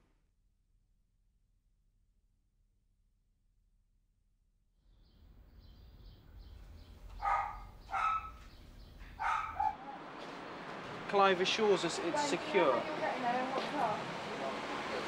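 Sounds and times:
dog barking: 7.2s - 8.5s, 9.2s - 9.8s.

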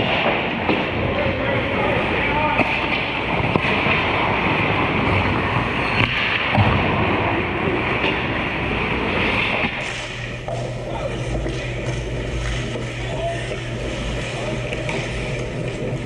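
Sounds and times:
skates scraping on ice: 0.0s - 16.0s
hockey stick clacks: 14.6s - 15.9s.

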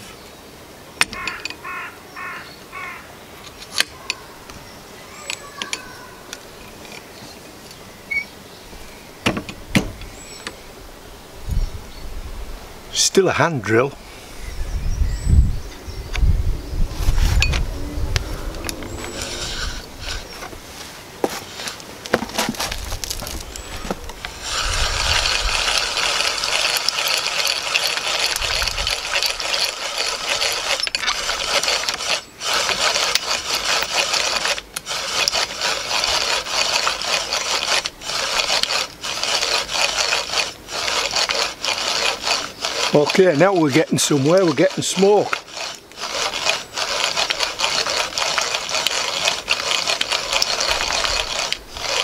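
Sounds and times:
spindle rasping on wood: 18.5s - 20.6s, 21.2s - 52.0s.

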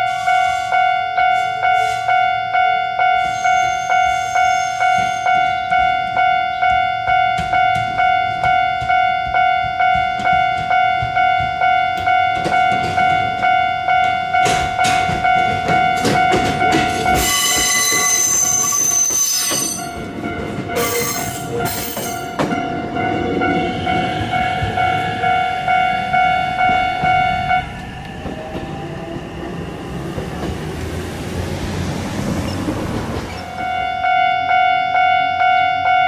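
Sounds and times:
level-crossing warning bell: 0.0s - 36.0s
high-pitched wheel squeal: 3.2s - 5.5s, 17.2s - 20.0s
train rumble: 4.9s - 34.1s
train wheels clicking over rail joints: 7.4s - 25.2s.

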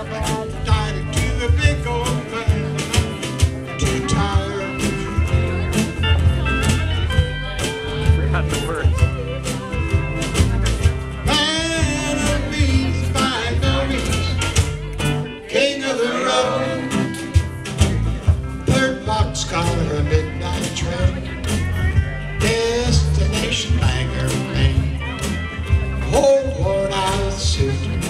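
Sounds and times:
man singing: 0.0s - 5.8s, 11.2s - 14.7s, 15.4s - 17.3s, 18.6s - 25.3s, 26.0s - 28.0s
steady drum beat: 0.0s - 15.4s, 16.0s - 28.0s
acoustic guitar strumming: 0.0s - 28.0s
electric guitar: 0.0s - 28.0s
pedal steel guitar: 0.0s - 28.0s.

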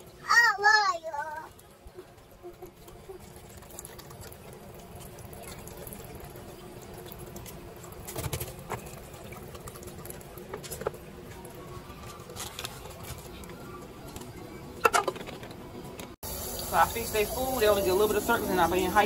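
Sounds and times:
soft drink pouring into cups: 1.6s - 13.8s.

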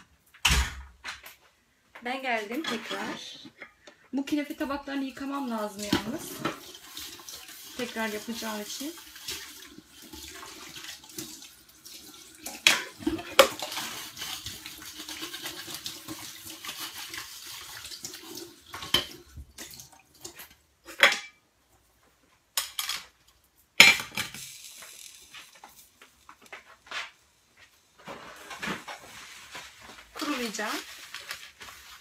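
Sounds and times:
tap running at a sink: 5.6s - 20.6s, 24.4s - 32.0s.

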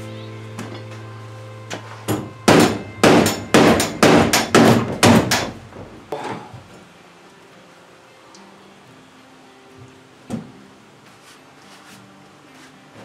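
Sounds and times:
hammer striking metal: 2.1s - 5.6s.

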